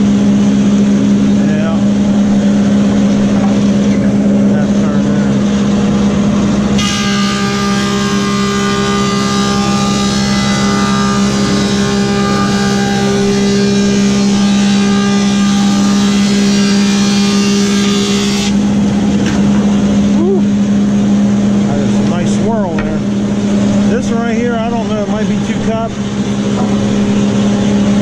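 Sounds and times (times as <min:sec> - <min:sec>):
low machine hum: 0:00.0 - 0:28.0
planer cutting wood: 0:06.8 - 0:18.8.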